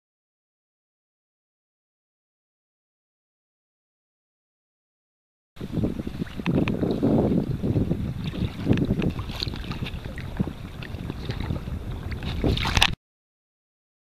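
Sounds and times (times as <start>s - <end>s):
water slapping against kayak hull: 5.6s - 13.0s
wind buffeting microphone: 5.6s - 13.0s.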